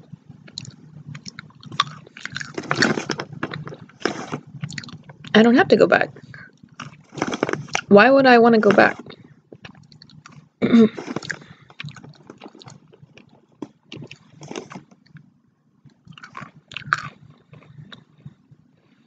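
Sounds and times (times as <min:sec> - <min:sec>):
chewing with wet mouth clicks: 0:04.6 - 0:05.4, 0:09.6 - 0:10.4, 0:11.1 - 0:15.3, 0:16.0 - 0:18.0.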